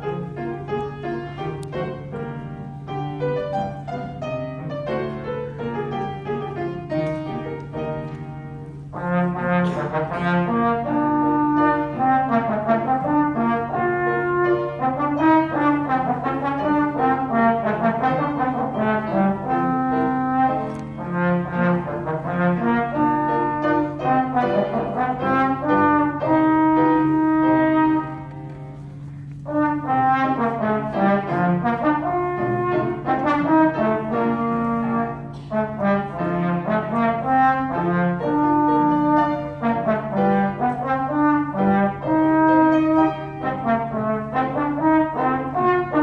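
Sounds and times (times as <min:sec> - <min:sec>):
piano accompaniment: 0:00.0 - 0:46.0
trombone solo: 0:08.9 - 0:28.3, 0:29.5 - 0:46.0.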